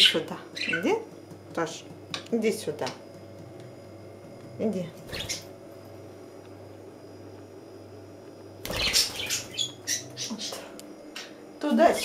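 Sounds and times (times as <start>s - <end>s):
budgerigar chirping and squawking: 0.0s - 0.9s, 5.1s - 5.5s, 8.7s - 10.6s
faint room hum: 0.0s - 12.0s.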